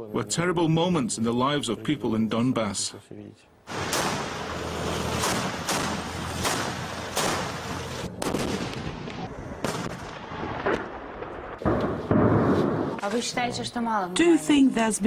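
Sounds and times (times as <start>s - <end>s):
armoured vehicle engine rumble: 3.7s - 9.6s
gunshots: 3.7s - 13.0s.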